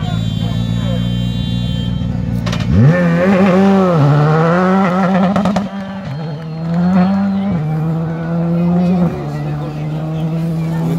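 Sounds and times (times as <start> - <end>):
rally car engine revving: 2.2 - 10.9.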